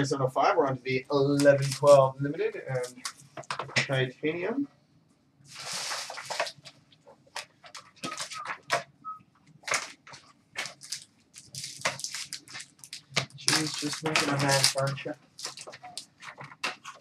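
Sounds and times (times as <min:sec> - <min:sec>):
plastic wrap and cardboard ripping: 0:01.6 - 0:02.0, 0:05.5 - 0:06.7, 0:09.6 - 0:17.0.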